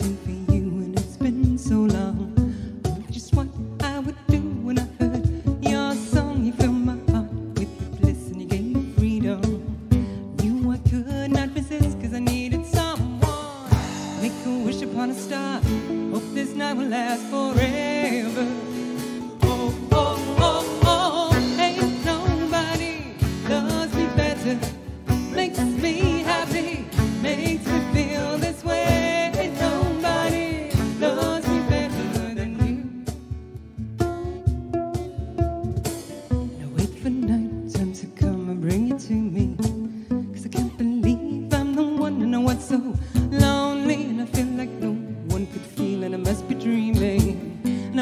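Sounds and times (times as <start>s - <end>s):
strummed acoustic guitar: 0.0s - 48.0s
violin melody: 13.8s - 42.9s
hand percussion beat: 17.6s - 36.5s.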